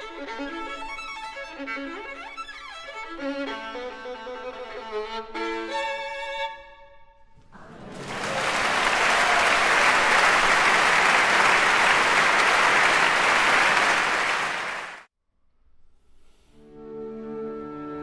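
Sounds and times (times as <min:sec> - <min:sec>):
audience applause: 0:07.5 - 0:15.1.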